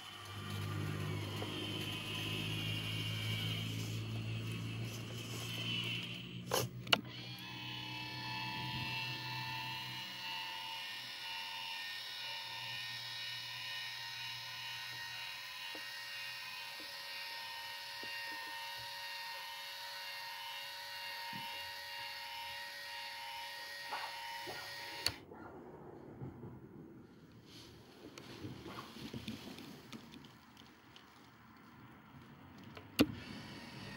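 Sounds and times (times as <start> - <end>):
small electric motor whining: 0.0 - 25.2, 32.7 - 33.9
motor stopping click: 6.8 - 9.8, 24.8 - 25.2.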